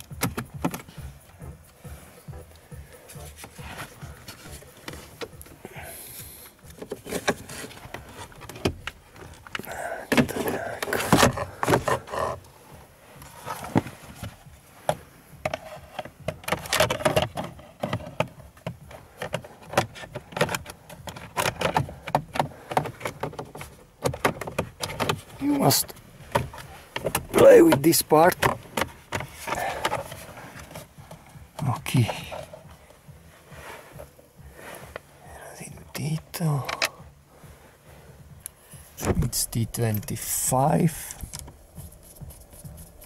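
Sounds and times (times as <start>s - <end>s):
plastic parts clicking and rattling: 6.6s - 12.4s, 14.9s - 25.6s, 26.3s - 32.6s.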